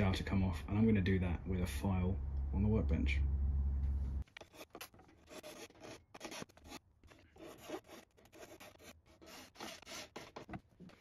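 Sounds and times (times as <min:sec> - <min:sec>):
file rasping on metal: 0:04.4 - 0:10.5.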